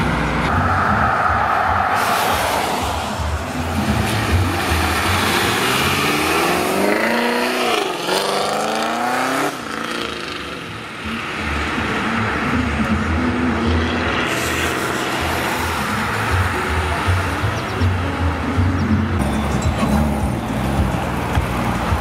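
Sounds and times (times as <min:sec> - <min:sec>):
car engine accelerating: 0:00.0 - 0:10.7.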